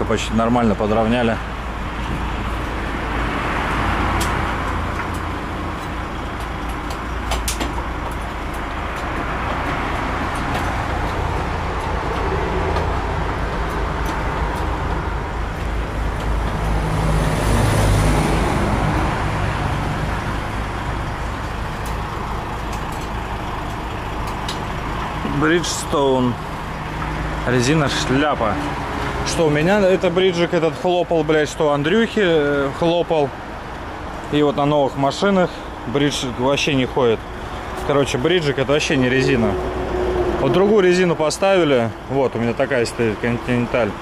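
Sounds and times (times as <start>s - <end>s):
highway traffic: 0.0s - 44.0s.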